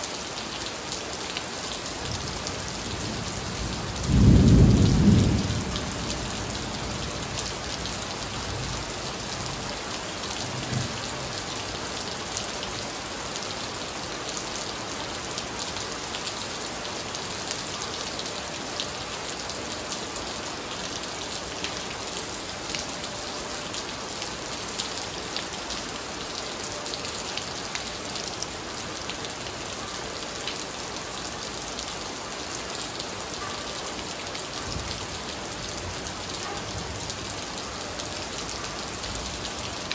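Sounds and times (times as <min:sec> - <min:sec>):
heavy rain on standing water: 0:00.0 - 0:39.9
thunder rumble: 0:04.0 - 0:06.7.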